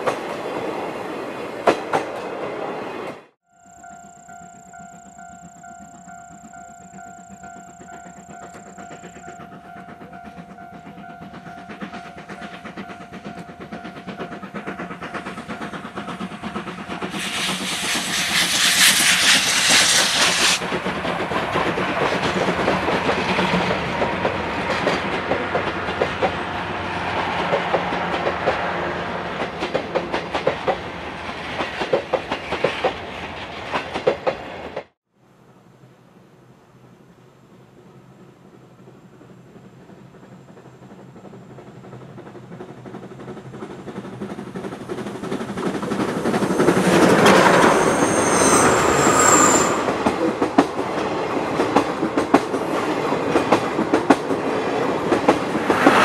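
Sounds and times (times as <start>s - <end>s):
train passing: 0.0s - 56.0s
wheels clattering over rail joints: 5.9s - 28.6s
steam hiss: 13.9s - 21.3s, 43.6s - 50.2s.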